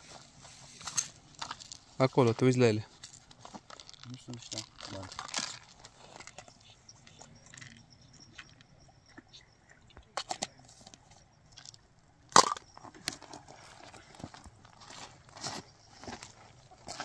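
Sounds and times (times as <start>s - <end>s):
faint high steady tone: 4.1s - 17.0s.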